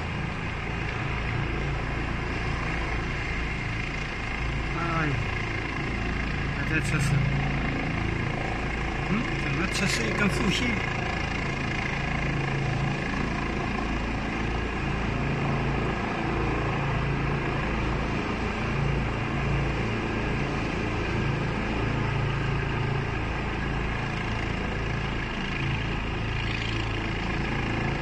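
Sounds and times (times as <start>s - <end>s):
helicopter engine and rotors: 0.0s - 28.0s.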